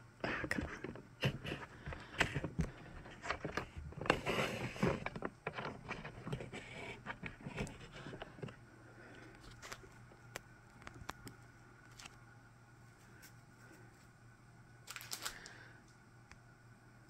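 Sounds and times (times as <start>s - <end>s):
plastic and paper rustling: 0.3s - 8.6s, 14.8s - 15.7s.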